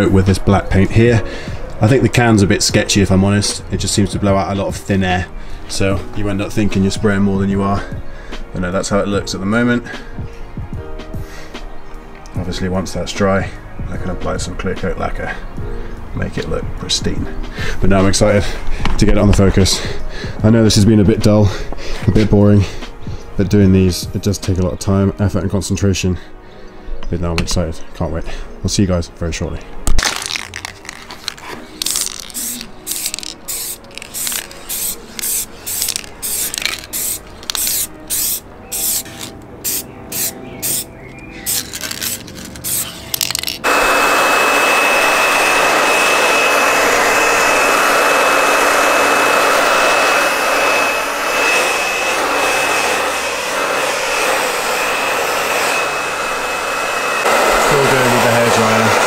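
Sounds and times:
spray paint can hissing: 30.2s - 40.9s, 41.5s - 43.7s
hair dryer whining: 31.4s - 39.3s, 42.7s - 59.0s.

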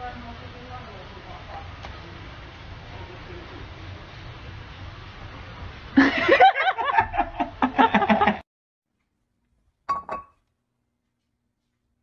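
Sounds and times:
human laughter: 6.0s - 8.4s.

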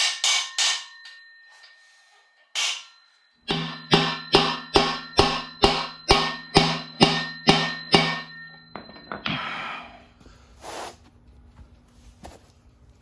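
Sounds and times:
sledgehammer striking metal: 0.0s - 1.1s, 2.6s - 9.4s.

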